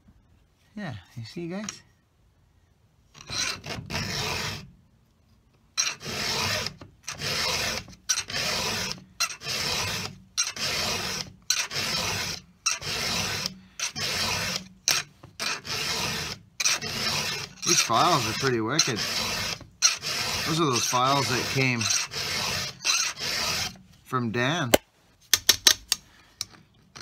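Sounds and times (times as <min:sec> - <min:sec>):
file rasping on saw chain: 0:03.2 - 0:04.7, 0:05.8 - 0:23.8.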